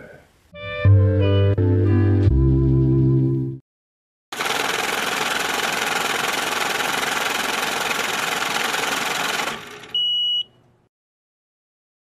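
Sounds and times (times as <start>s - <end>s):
harsh rattling static noise: 4.4s - 9.8s
high beep: 10.0s - 10.5s.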